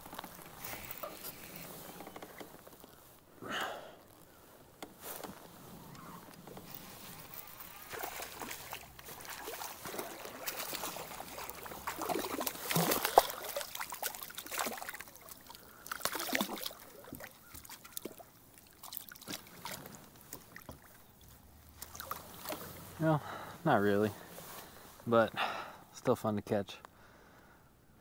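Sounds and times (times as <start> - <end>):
fish thrashing and splashing: 5.5 - 22.9.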